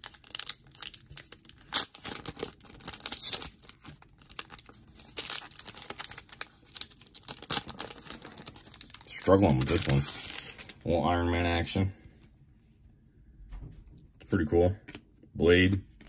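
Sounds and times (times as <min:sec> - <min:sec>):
foil wrapper tearing and crinkling: 0:00.0 - 0:10.8.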